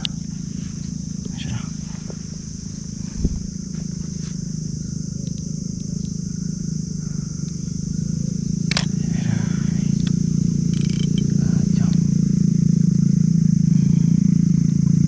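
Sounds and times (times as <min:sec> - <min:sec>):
high-pitched buzz: 0:00.0 - 0:15.0
low engine drone: 0:00.0 - 0:15.0
sharp click: 0:08.7 - 0:09.0, 0:10.0 - 0:12.0.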